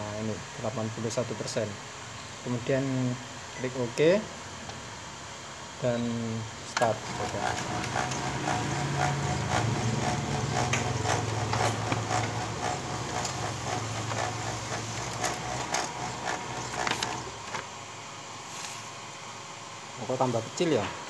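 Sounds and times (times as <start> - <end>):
copier motor hum: 5.8 - 20.8
copier mechanical clicks: 6.7 - 17.7.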